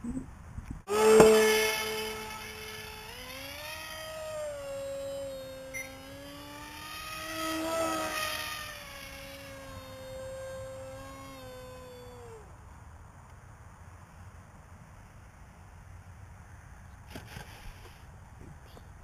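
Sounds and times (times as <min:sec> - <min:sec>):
model plane motor whine: 0:00.9 - 0:12.6.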